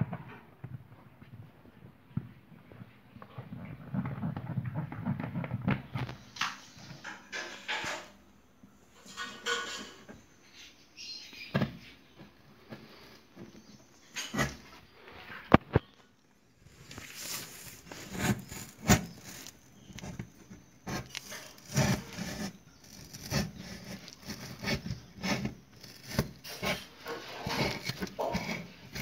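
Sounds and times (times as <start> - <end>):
knife sawing through cardboard: 17.2 - 19.6, 20.9 - 29.0.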